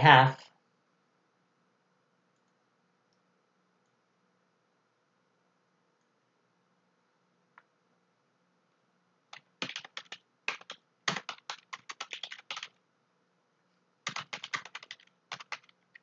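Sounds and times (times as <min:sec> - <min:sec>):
computer keyboard typing: 0:09.3 - 0:12.8, 0:14.0 - 0:16.0.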